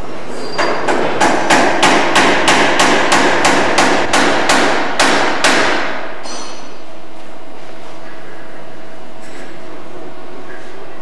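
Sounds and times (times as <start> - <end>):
hammer blows echoing: 0.6 - 6.8.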